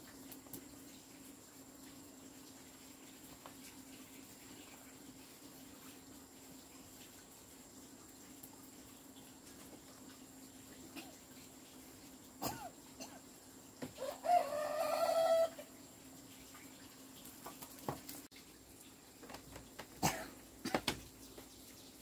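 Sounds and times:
rooster crowing: 0:14.0 - 0:15.8.

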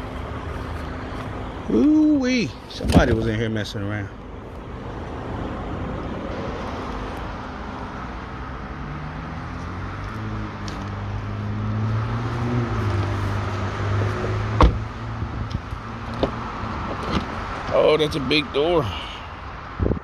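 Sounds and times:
road traffic rushing: 0:00.0 - 0:20.0
vehicle engine humming: 0:00.0 - 0:20.0.

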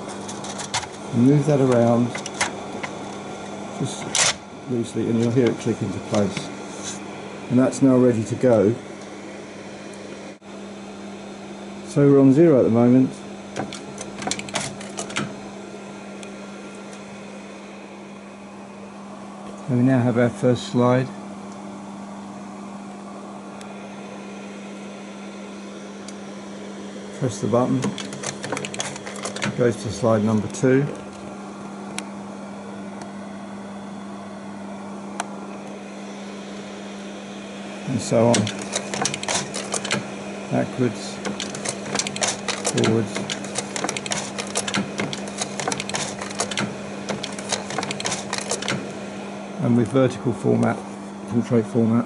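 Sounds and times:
projector cooling fan whirring: 0:00.0 - 0:52.0
slide projector mechanism clicking: 0:01.7 - 0:03.0, 0:13.6 - 0:15.3, 0:27.8 - 0:29.7, 0:38.3 - 0:40.1, 0:41.2 - 0:48.9.

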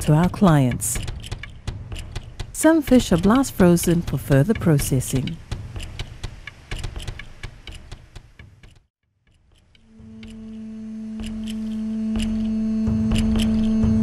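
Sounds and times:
ticking beat: 0:00.0 - 0:14.0
sustained low note: 0:09.9 - 0:14.0.

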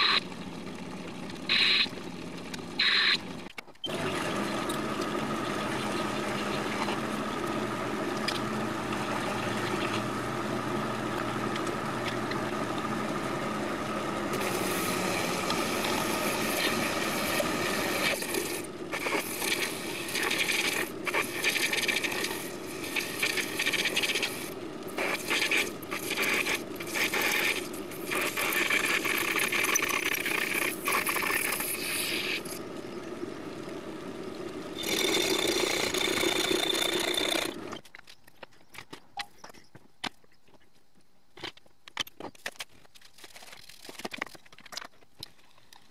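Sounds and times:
metal lathe running: 0:03.9 - 0:37.8.

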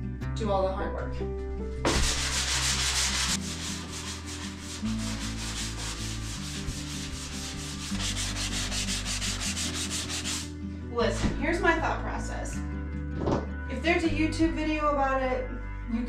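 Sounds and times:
sanding block scrubbing: 0:01.9 - 0:10.5.

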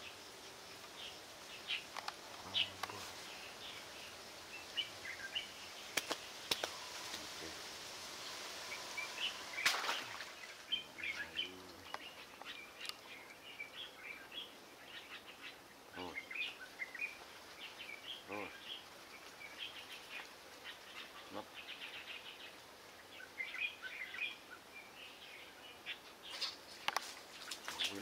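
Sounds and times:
outdoor hiss: 0:00.0 - 0:28.0
small birds chirping: 0:00.0 - 0:28.0
sharp clicks: 0:05.9 - 0:06.8.

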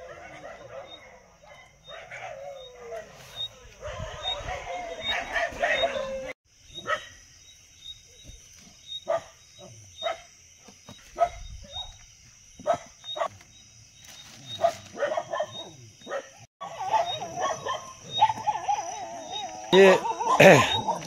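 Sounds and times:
puppies yelping: 0:00.0 - 0:06.4, 0:14.6 - 0:21.0.

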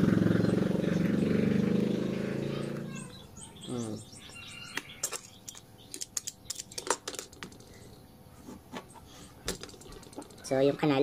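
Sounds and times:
fingers clicking and tapping parts: 0:05.0 - 0:07.6.

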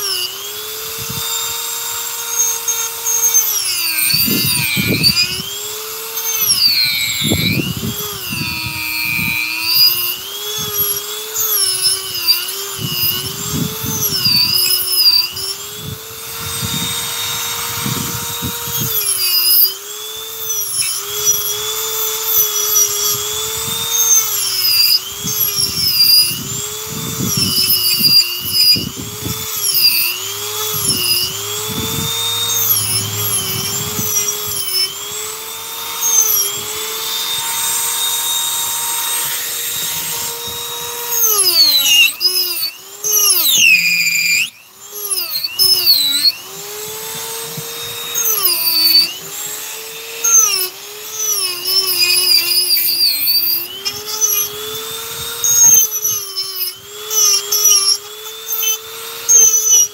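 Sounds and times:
bit grinding wood: 0:00.0 - 0:59.9
rotary tool whining: 0:00.0 - 0:59.9.

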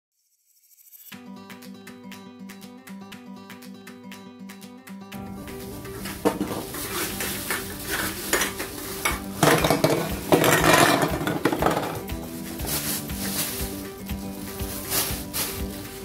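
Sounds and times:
plastic bag rustling: 0:05.3 - 0:16.0
aluminium cans clattering: 0:05.6 - 0:13.8.

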